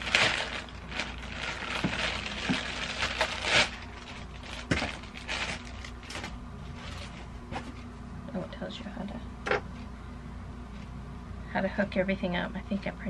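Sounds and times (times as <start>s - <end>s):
plastic bag crinkling: 0.0s - 7.3s.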